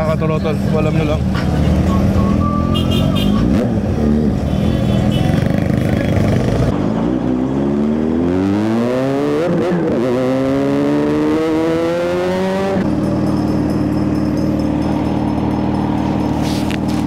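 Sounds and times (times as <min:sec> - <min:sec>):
motorcycle engine accelerating: 0:05.2 - 0:17.0.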